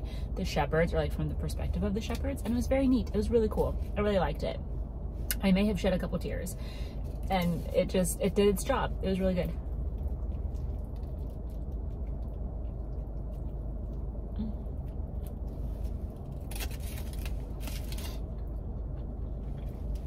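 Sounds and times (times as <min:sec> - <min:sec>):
steady low rumble: 0:00.0 - 0:20.0
person chewing food: 0:09.6 - 0:20.0
foil wrapper crinkling: 0:16.3 - 0:18.2.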